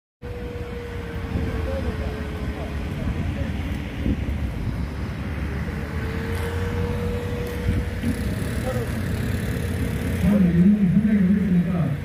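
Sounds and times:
low crowd rumble: 0:00.3 - 0:12.0
faint voices: 0:00.6 - 0:04.5, 0:06.4 - 0:12.0.

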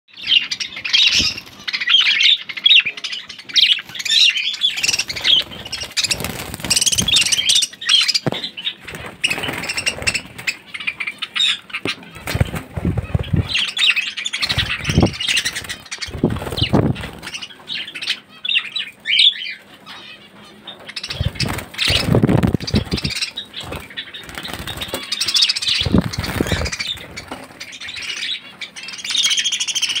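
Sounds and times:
budgerigars chattering and squawking: 0:00.1 - 0:30.0
wing flapping: 0:04.8 - 0:10.7, 0:12.1 - 0:13.8, 0:14.4 - 0:17.5, 0:21.0 - 0:27.7.

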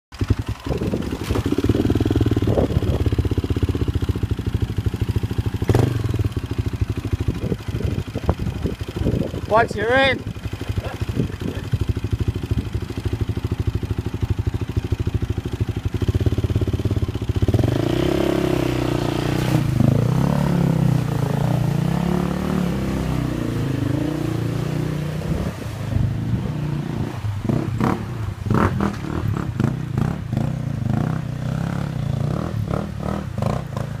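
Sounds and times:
dirt bike engine revving: 0:00.2 - 0:34.0.

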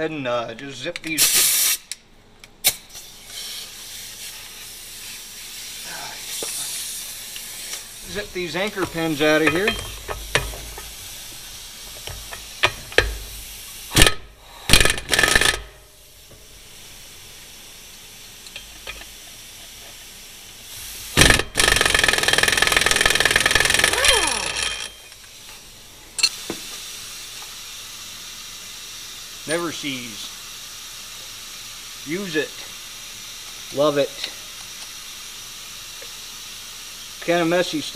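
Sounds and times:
pneumatic air hammer rattling: 0:01.0 - 0:02.0, 0:02.6 - 0:25.6.

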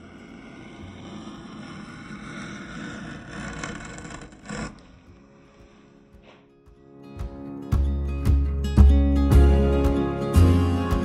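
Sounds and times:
chisel scraping through wood: 0:00.0 - 0:06.4.

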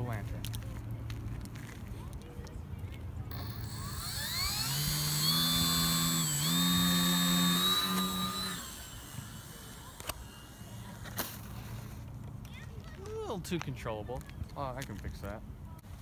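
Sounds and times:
electric motor and propeller whine: 0:03.3 - 0:12.1.

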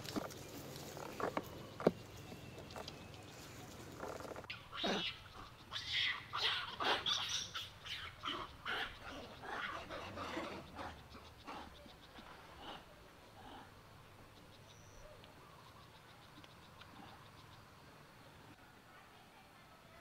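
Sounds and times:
macaques squealing: 0:04.5 - 0:11.7.

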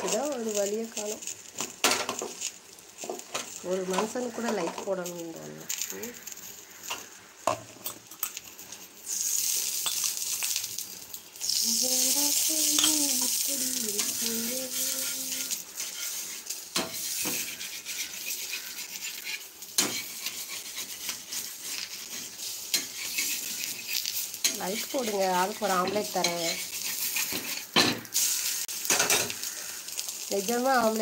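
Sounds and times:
egg sizzling in a pan: 0:00.0 - 0:31.0
metal spatula scraping pan: 0:12.7 - 0:29.4.

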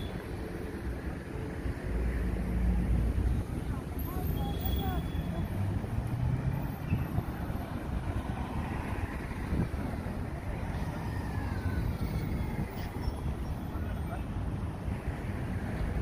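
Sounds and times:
road traffic rumble: 0:00.0 - 0:16.0
car passing: 0:04.8 - 0:12.2.

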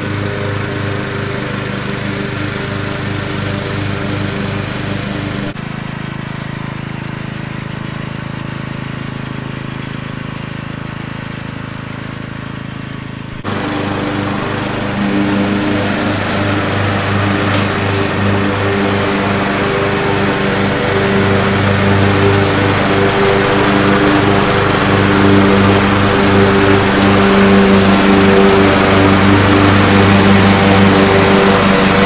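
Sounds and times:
riding lawn mower engine: 0:00.0 - 0:32.0.

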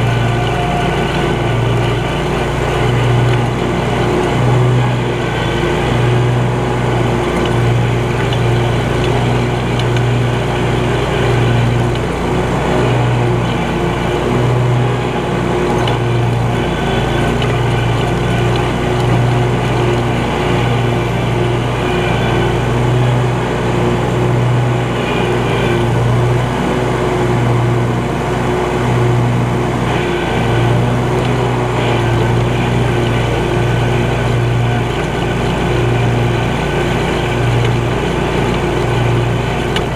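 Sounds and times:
riding mower engine running: 0:00.0 - 0:39.9.

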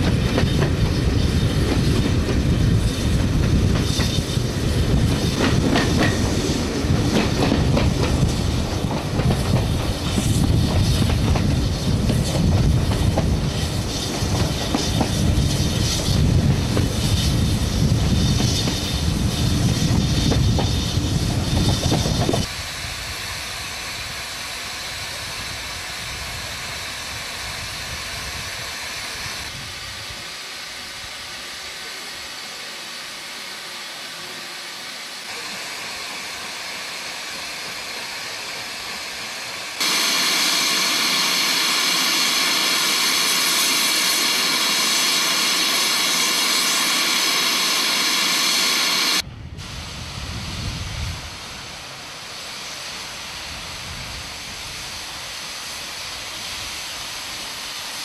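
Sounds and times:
loud high steam hiss: 0:00.0 - 0:58.0
steam hissing: 0:00.0 - 0:58.0.

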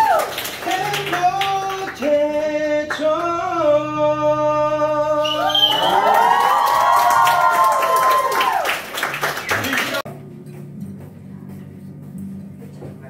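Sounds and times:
guests cheering: 0:00.0 - 0:00.6, 0:05.2 - 0:10.0
people clapping: 0:00.0 - 0:03.4, 0:05.3 - 0:10.1.

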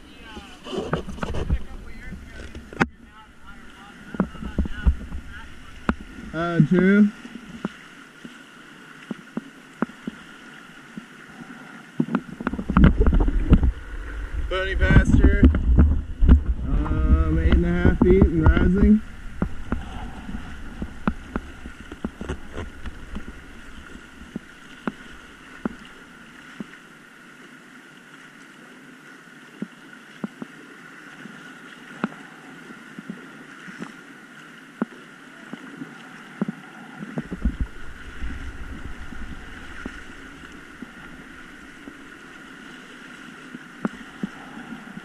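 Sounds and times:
wind buffeting microphone: 0:00.0 - 0:07.7, 0:12.2 - 0:26.1, 0:37.1 - 0:45.0
paddle strokes splashing: 0:00.0 - 0:45.0
river water rushing: 0:00.0 - 0:45.0.

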